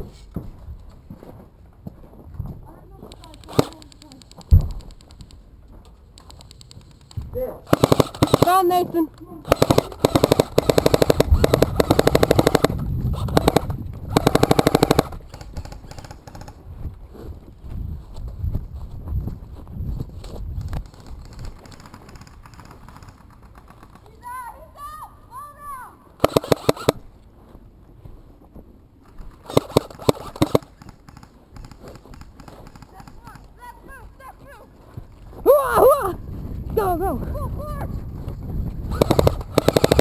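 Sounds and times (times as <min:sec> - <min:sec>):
airsoft gun firing full-auto: 0:07.7 - 0:08.8, 0:09.4 - 0:16.5, 0:26.2 - 0:27.0, 0:29.4 - 0:32.8, 0:38.9 - 0:40.0.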